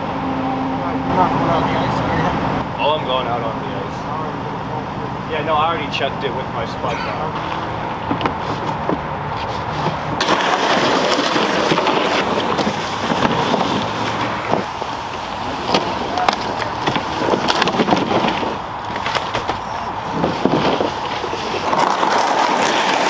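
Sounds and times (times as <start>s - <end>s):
plastic sled scraping over ice: 9.4s - 23.0s.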